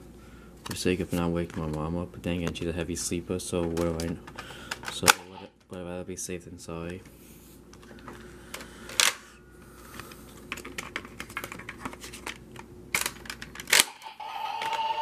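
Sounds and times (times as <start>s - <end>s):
toy electronic beeping: 13.9s - 15.0s.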